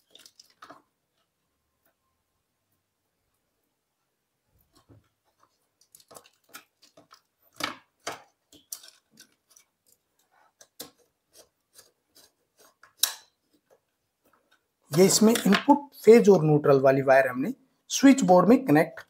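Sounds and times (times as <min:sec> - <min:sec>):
clicks taps and scrapes: 0:04.6 - 0:15.8.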